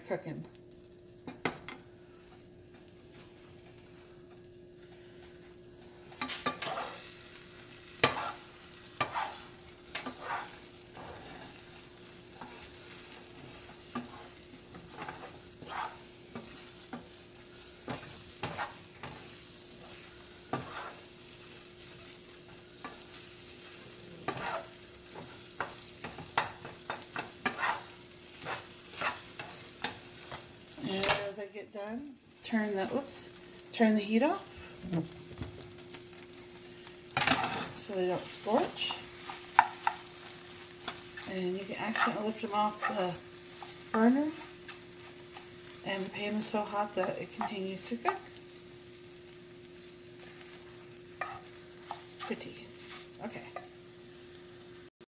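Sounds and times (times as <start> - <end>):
eggs sizzling: 0.5 - 55.0
wooden spoon scraping a pan: 5.8 - 7.1, 7.9 - 31.3, 37.2 - 48.4, 49.8 - 53.8.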